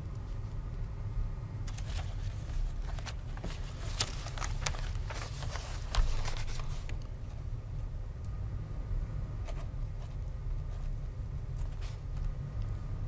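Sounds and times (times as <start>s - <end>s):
low room hum: 0.0s - 13.0s
paper rustling: 1.7s - 7.1s, 9.4s - 12.3s.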